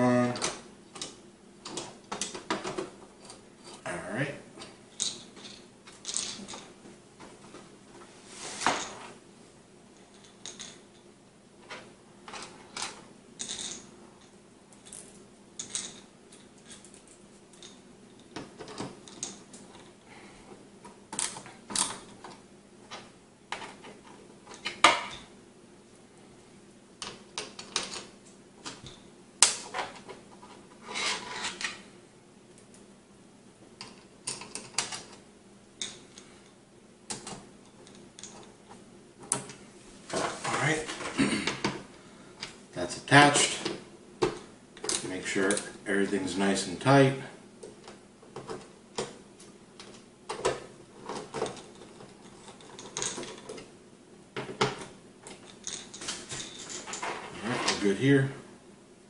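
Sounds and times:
metal screws clicking and rattling: 0:04.9 - 0:06.7, 0:10.0 - 0:10.8, 0:12.3 - 0:19.9, 0:51.1 - 0:53.6, 0:55.3 - 0:57.2.

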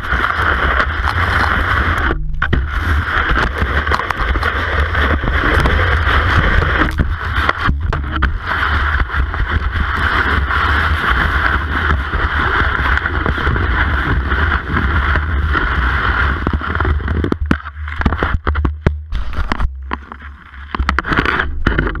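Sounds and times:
ski scraping hiss: 0:00.0 - 0:02.0, 0:08.3 - 0:16.9
sharp clicks and knocks: 0:00.7 - 0:08.4, 0:16.4 - 0:22.0.

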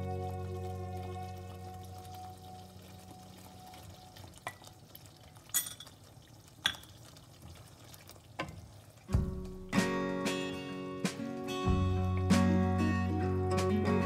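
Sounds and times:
acoustic guitar music: 0:00.0 - 0:03.7, 0:09.1 - 0:14.0.

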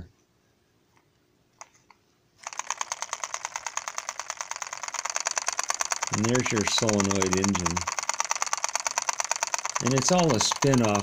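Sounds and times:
solenoid engine clattering: 0:02.4 - 0:11.0.

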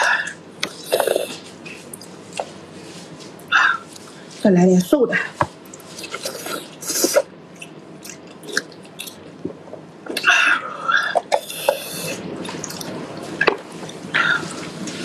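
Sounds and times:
wet chewing and smacking: 0:07.5 - 0:10.2, 0:12.4 - 0:15.0.

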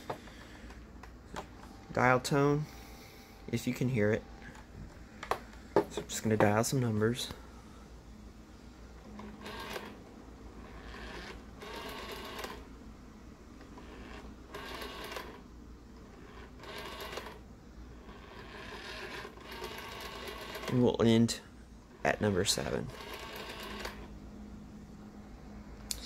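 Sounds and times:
rotary telephone dial whirring clicks: 0:09.0 - 0:10.0, 0:10.6 - 0:12.7, 0:13.6 - 0:17.4, 0:18.0 - 0:20.9, 0:22.9 - 0:24.1.

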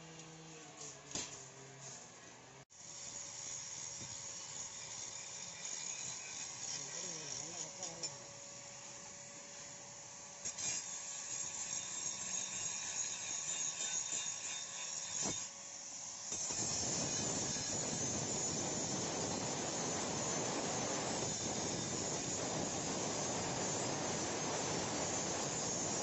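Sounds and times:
angle grinder grinding steel: 0:02.9 - 0:08.3, 0:10.5 - 0:15.5, 0:16.3 - 0:26.0.

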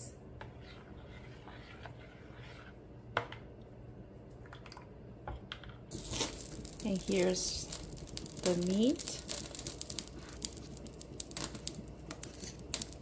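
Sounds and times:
spoon stirring liquid in bowl: 0:00.4 - 0:02.8.

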